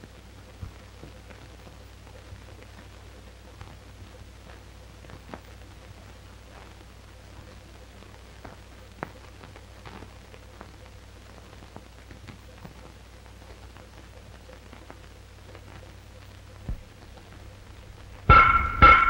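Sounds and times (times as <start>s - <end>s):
film crackles and clicks: 0.0s - 19.0s
low hum: 15.7s - 19.0s.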